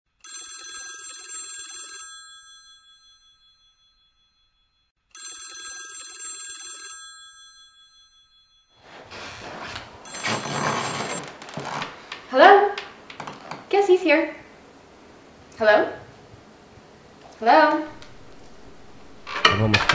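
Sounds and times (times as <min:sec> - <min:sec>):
telephone bell ringing: 0:00.2 - 0:11.3
footsteps and movement: 0:08.8 - 0:19.9.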